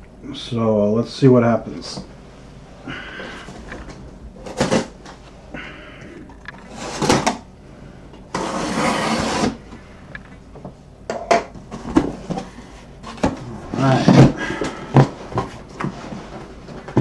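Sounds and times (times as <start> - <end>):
cardboard ripping: 4.4 - 5.0, 8.4 - 9.6
packing tape scraping and tearing: 4.4 - 5.0, 6.6 - 7.4, 8.3 - 9.6.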